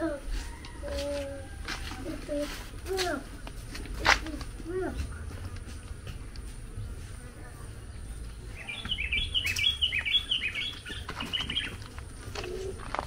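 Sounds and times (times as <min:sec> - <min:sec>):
small bird chirping: 0:08.2 - 0:12.8.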